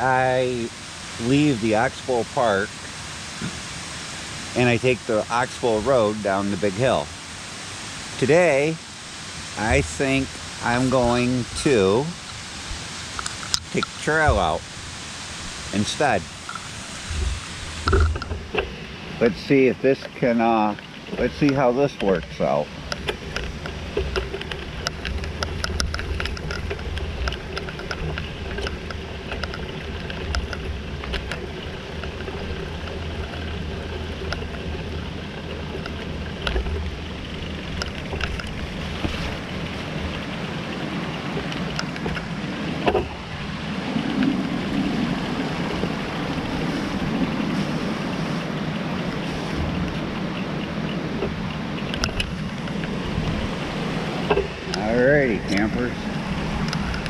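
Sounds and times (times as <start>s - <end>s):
bicycle tyre noise: 0.0s - 57.0s
wind buffeting microphone: 0.0s - 57.0s
bicycle clicks and knocks: 17.8s - 18.8s, 22.3s - 43.3s, 49.1s - 53.4s.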